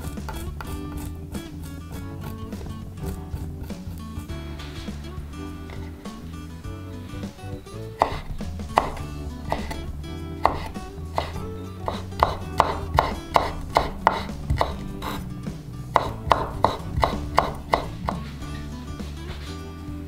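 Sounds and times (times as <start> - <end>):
knife knocking on wooden board: 7.5 - 15.2, 16.0 - 18.7.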